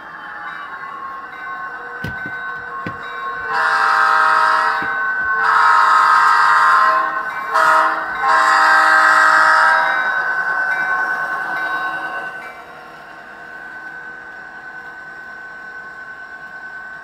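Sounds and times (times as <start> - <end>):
steady running hum: 2.0 - 3.9
model train multi-note horn: 3.4 - 10.2.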